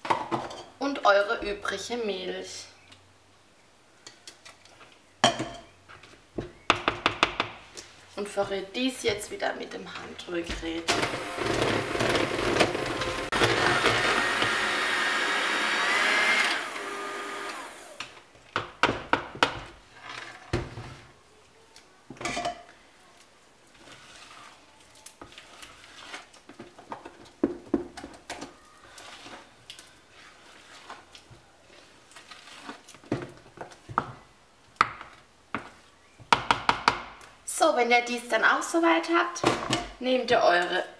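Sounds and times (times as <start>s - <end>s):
electric hand mixer whirring: 10.9s - 18.1s
spatula scraping a bowl: 23.8s - 26.4s, 28.9s - 33.0s.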